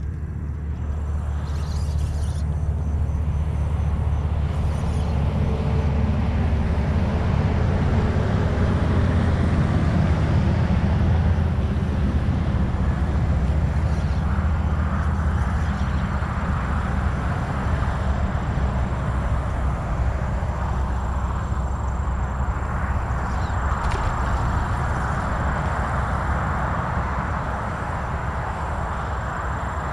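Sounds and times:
highway traffic rumble: 0.0 - 29.9.

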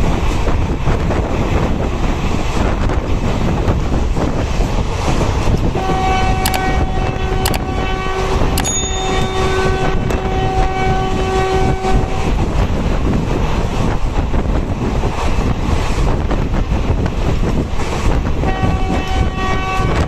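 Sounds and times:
rushing wind: 0.0 - 20.0
train rumble: 0.0 - 20.0
locomotive horn blast: 5.8 - 12.4, 18.4 - 20.0
sharp clicks: 6.5 - 6.8, 7.5 - 7.7.

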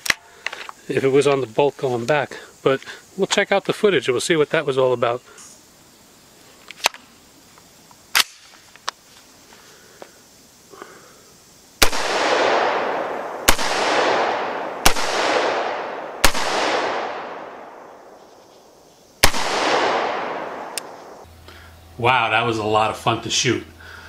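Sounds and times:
gunshots with echo: 11.8 - 17.9, 19.2 - 21.2.

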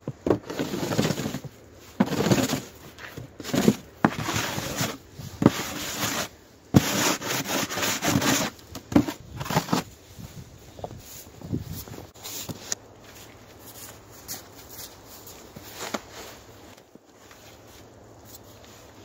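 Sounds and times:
snow shovel scraping: 0.3 - 10.0.

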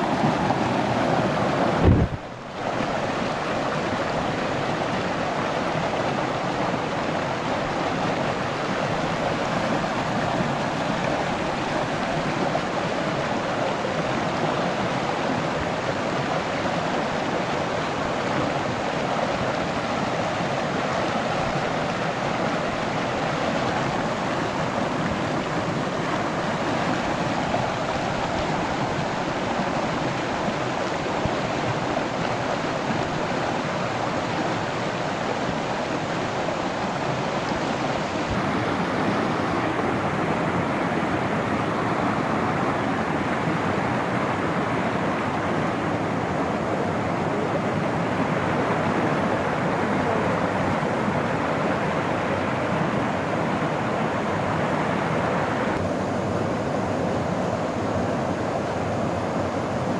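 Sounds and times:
stream rushing over boulders: 0.0 - 59.9.

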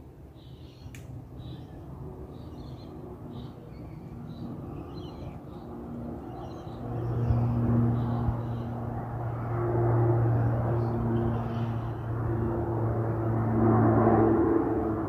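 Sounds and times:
propeller aircraft drone: 0.0 - 15.0.

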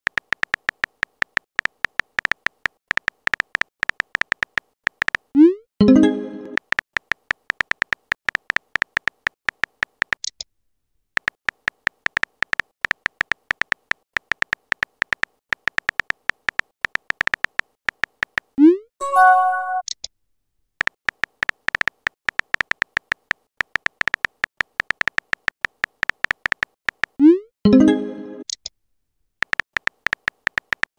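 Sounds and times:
pitched alert tone: 5.4 - 6.6, 19.0 - 19.8, 27.7 - 28.4
message-sent chime: 5.8 - 6.6, 19.0 - 19.8
keyboard tap clicks: 20.8 - 27.2, 29.4 - 30.9.

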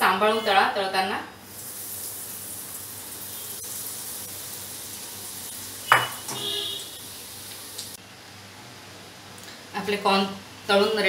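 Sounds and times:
corn sizzling in hot oil: 1.4 - 8.0.

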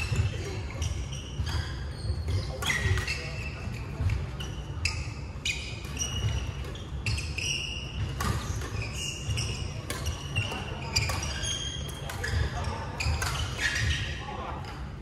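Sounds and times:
shoes squeaking on floor: 0.0 - 14.3
racket hitting shuttlecock: 5.8 - 14.0.

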